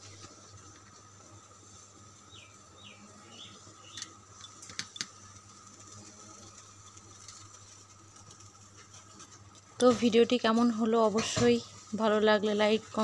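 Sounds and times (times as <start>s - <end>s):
faint steady hum: 0.0s - 13.0s
small bird chirping: 2.2s - 4.6s.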